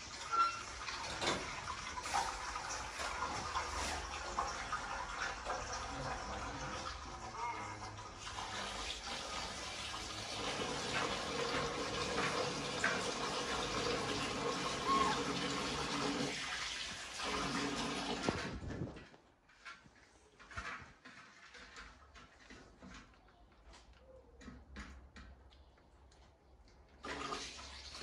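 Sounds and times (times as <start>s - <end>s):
water running from a tap: 0.0s - 18.5s, 27.0s - 28.0s.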